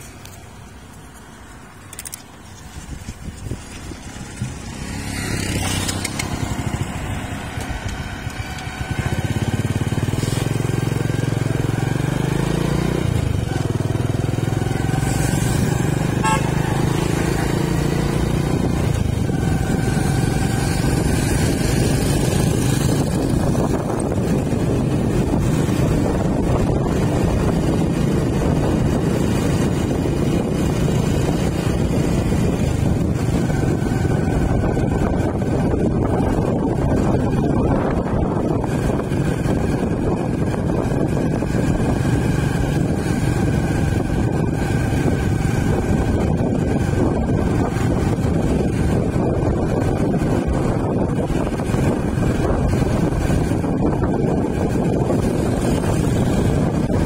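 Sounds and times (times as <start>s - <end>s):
vehicle engine and tyre rumble: 0.0s - 57.0s
vehicle horns: 15.0s - 17.6s.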